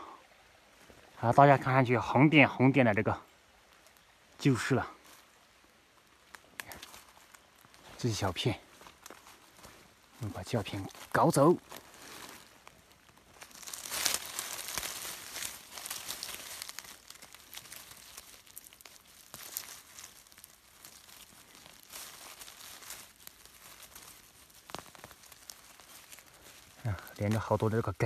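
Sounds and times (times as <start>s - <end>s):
leaves and soil rustling: 0.0s - 28.0s
twigs clicking: 5.9s - 28.0s.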